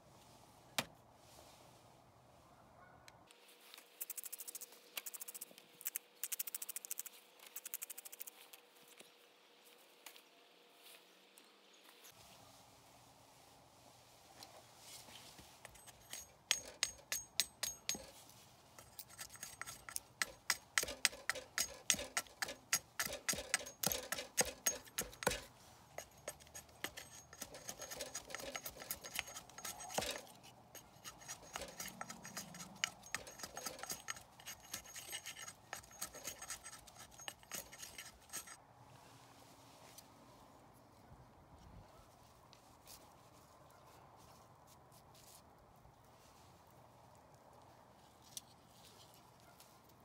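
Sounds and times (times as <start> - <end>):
blade cutting wooden stick: 15.6 - 18.1, 18.8 - 38.6
blade scraping wood: 15.6 - 18.1, 18.8 - 38.6.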